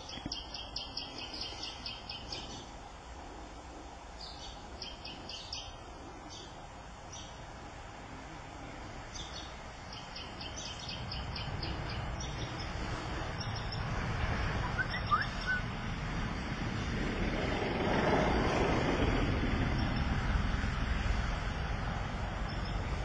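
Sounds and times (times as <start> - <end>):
birds chirping: 0.0 - 2.8, 4.1 - 7.4, 9.0 - 15.7, 19.6 - 20.4, 22.4 - 23.0
low rumbling noise: 0.0 - 23.0.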